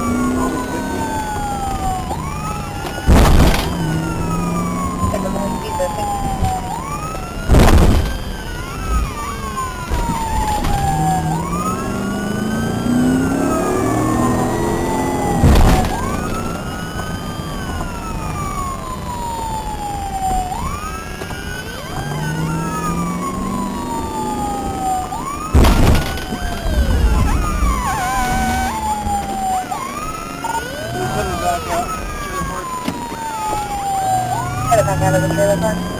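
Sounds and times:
police siren wailing: 0:00.0 - 0:35.9
second wailing siren: 0:00.0 - 0:35.9
loud thumps: 0:02.8 - 0:04.0, 0:07.4 - 0:09.2, 0:15.3 - 0:16.6, 0:25.4 - 0:29.2.

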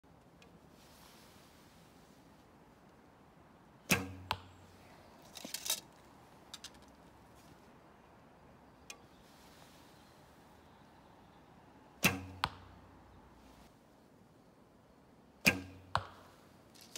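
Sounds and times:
arrows rattling in quiver: 0:03.9 - 0:04.4, 0:05.3 - 0:06.9
bowstring slap: 0:03.9 - 0:04.5, 0:12.0 - 0:12.8, 0:15.5 - 0:16.1.

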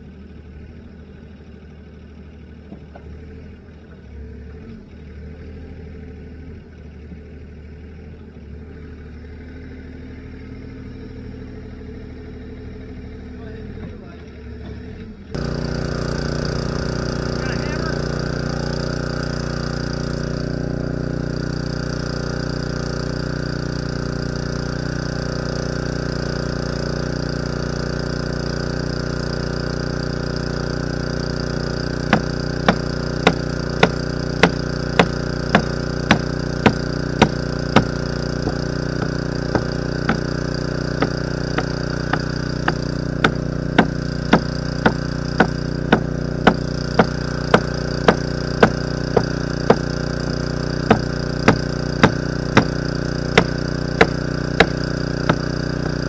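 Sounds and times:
small engine idling: 0:00.0 - 0:56.0
hammer striking hard object: 0:32.1 - 0:40.3, 0:41.0 - 0:49.9, 0:50.9 - 0:52.8, 0:53.4 - 0:56.0.

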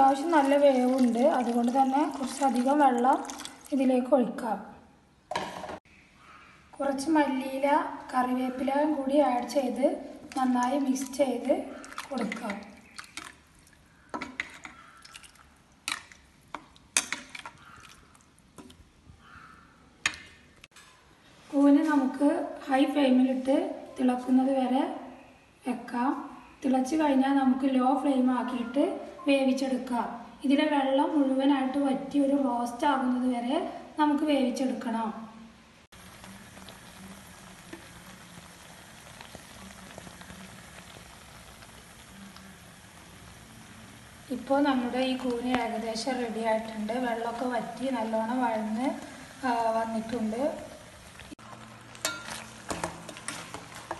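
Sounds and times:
faint wet liquid sounds: 0:00.0 - 0:03.9, 0:09.4 - 0:20.4, 0:35.9 - 0:53.9
thick sauce bubbling and popping: 0:35.9 - 0:44.1, 0:48.7 - 0:53.9.

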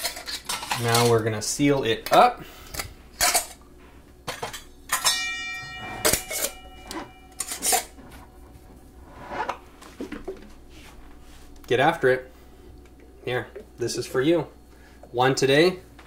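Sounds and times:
glass jars clinking: 0:04.3 - 0:08.5
ringing glass knock: 0:05.1 - 0:07.5.

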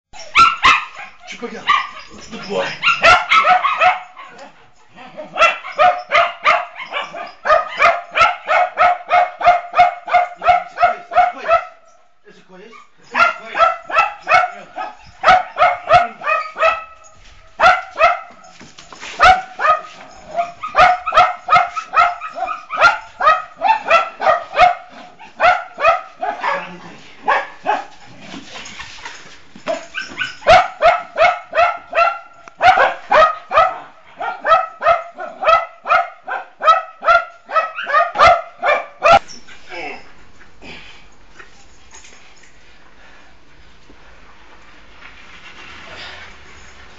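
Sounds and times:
dog barking: 0:00.4 - 0:02.0, 0:02.6 - 0:04.5, 0:05.3 - 0:11.9, 0:13.1 - 0:18.5, 0:19.2 - 0:28.0, 0:29.7 - 0:39.2.

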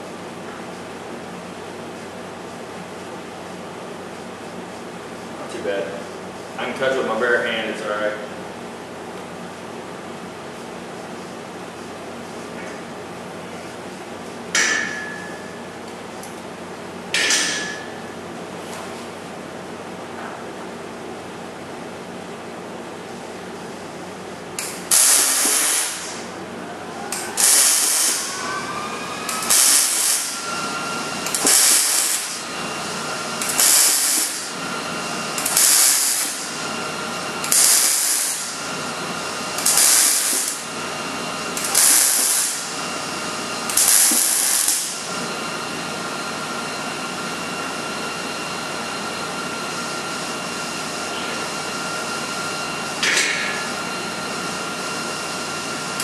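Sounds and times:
steady background hum: 0:00.0 - 0:56.0
welding arc buzzing: 0:24.6 - 0:26.4, 0:27.1 - 0:56.0.

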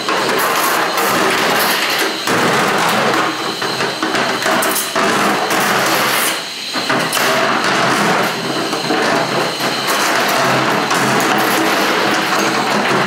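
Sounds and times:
drain snake cable spinning and clattering: 0:06.9 - 0:13.0.

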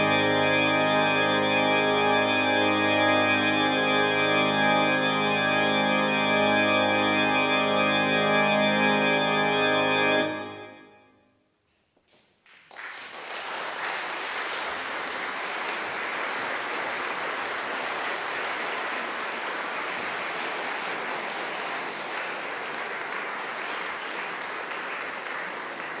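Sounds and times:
audience applauding: 0:12.1 - 0:26.0.

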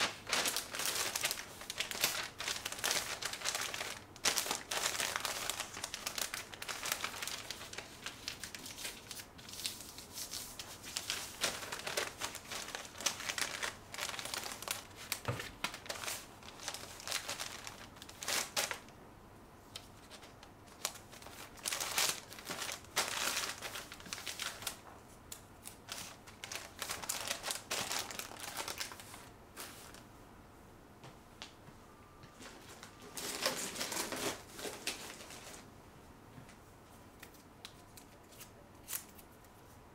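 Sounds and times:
wrapping paper crinkling: 0:00.0 - 0:18.9, 0:19.8 - 0:24.8, 0:25.6 - 0:30.0, 0:32.4 - 0:35.6.

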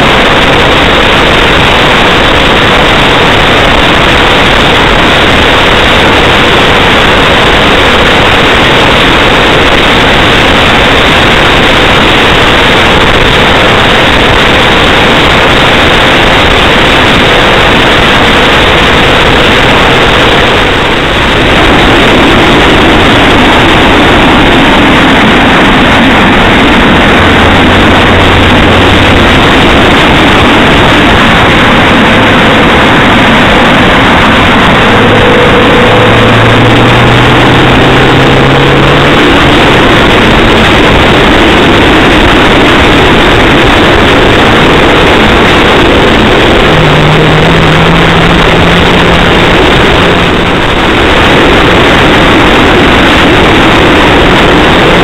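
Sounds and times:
car engine hum: 0:00.0 - 0:55.0
road noise rushing: 0:00.0 - 0:55.0.

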